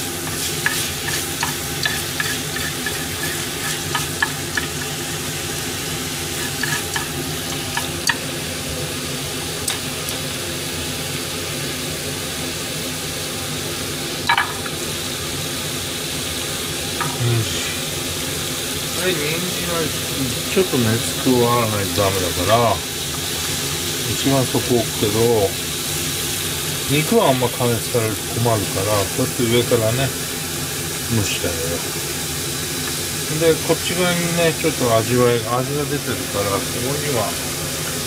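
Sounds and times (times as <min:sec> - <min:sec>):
meat sizzling in a frying pan: 0:00.0 - 0:38.0
chopsticks scraping a pan: 0:00.2 - 0:08.2.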